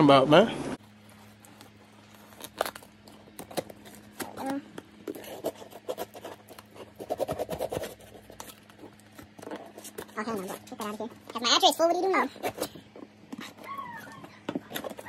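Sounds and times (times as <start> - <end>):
knife slitting packing tape: 2.2 - 4.5.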